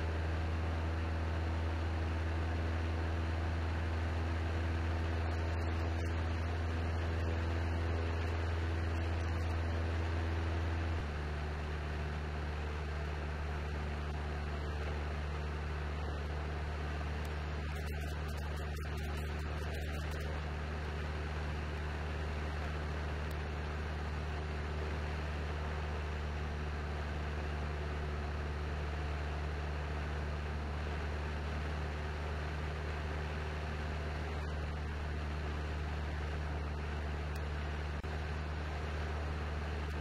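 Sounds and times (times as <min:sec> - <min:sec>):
propeller plane engine drone: 0:00.0 - 0:40.0.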